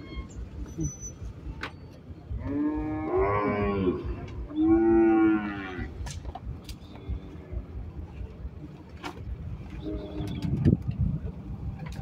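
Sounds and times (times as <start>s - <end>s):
cattle mooing: 2.4s - 6.0s.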